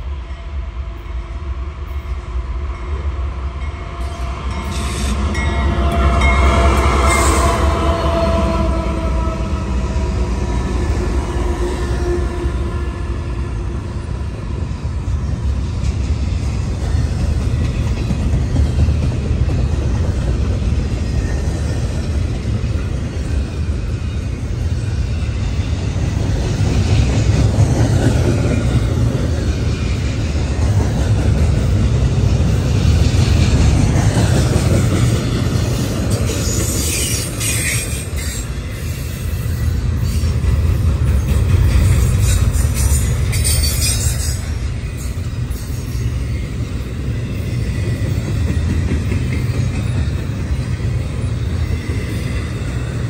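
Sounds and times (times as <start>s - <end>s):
freight train rumbling past: 0.0s - 53.0s
high wheel squeal: 36.1s - 40.4s, 41.8s - 48.6s.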